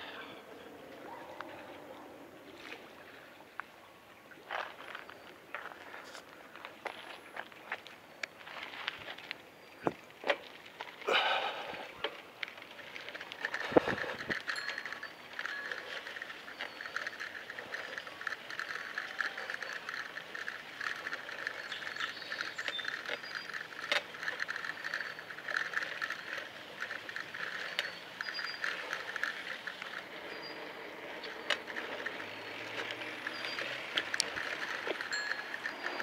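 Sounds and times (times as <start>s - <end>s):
bicycle riding with clicks: 4.4s - 36.0s
birds chirping: 13.4s - 36.0s.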